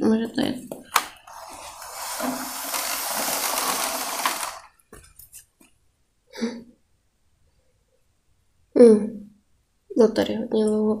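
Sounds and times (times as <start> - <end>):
toy wheels rolling on carpet: 0.9 - 5.0.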